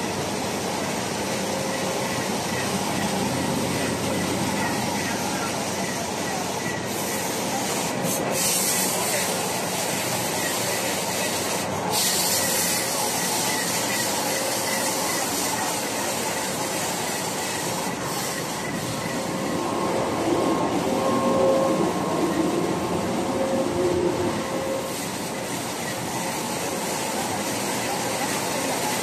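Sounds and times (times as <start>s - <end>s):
printing machine running: 0.0s - 29.0s.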